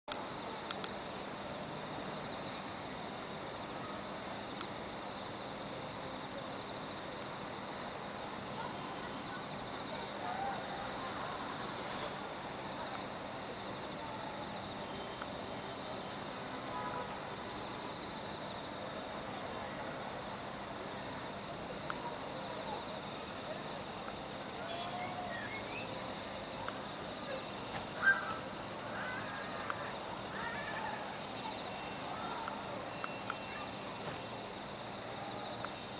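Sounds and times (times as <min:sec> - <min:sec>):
background hiss: 0:00.1 - 0:35.9
night insects chirring: 0:00.1 - 0:35.9
faint distant voices: 0:00.2 - 0:35.9
constant high tone: 0:19.2 - 0:35.9.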